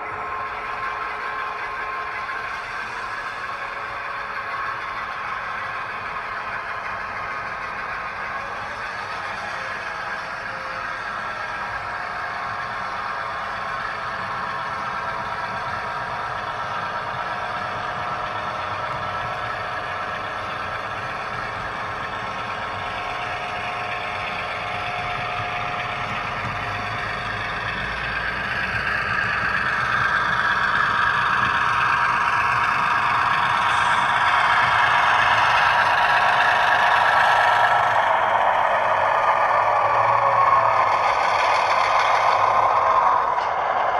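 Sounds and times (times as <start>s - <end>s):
model locomotive diesel engine sound: 0.0s - 43.9s.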